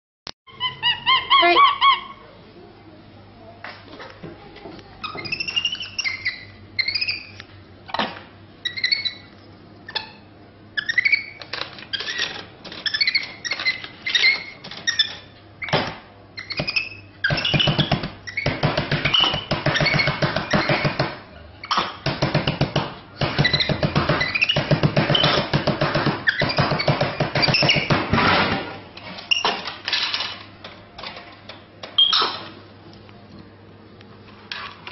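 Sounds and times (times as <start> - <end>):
monkey chirping squeaks: 0.5 - 2.2, 5.0 - 7.4, 8.6 - 9.3, 10.8 - 15.8, 16.4 - 20.9, 32.0 - 32.4.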